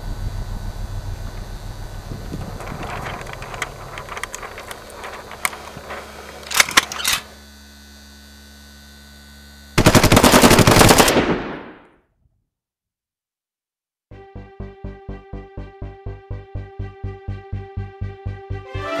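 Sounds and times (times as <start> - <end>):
steady low hum: 0.0 - 10.7
automatic weapons firing: 9.8 - 11.8.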